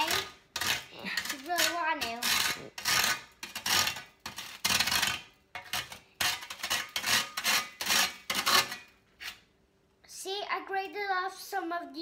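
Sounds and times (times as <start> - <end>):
toast scraping on a grater: 0.0 - 9.5.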